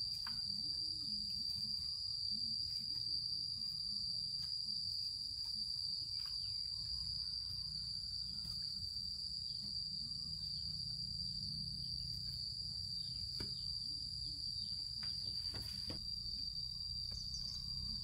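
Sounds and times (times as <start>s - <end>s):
insects chirring: 0.0s - 18.0s.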